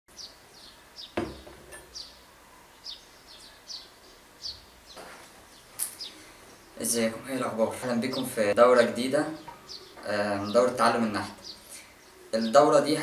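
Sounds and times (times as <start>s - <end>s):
small bird chirping: 0.1s - 12.6s
knock: 1.2s - 1.8s.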